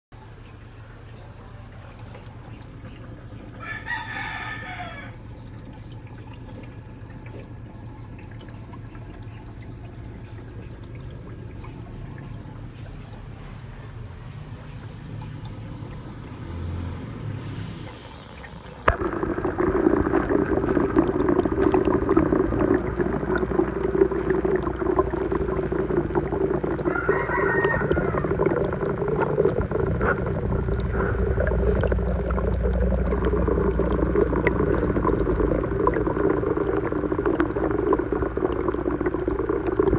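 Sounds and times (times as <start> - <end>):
water running in an aquarium: 0.1 - 39.9.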